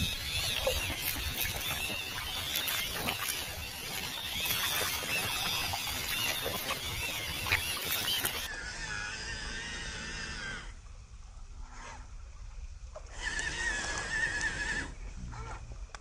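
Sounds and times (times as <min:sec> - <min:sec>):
running water hissing: 0:00.0 - 0:08.5
electric motor whining: 0:00.0 - 0:09.0.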